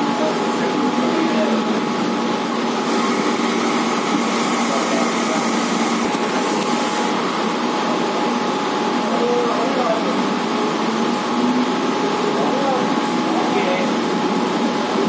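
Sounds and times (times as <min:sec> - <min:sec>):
electric train running hum: 0:01.5 - 0:08.4.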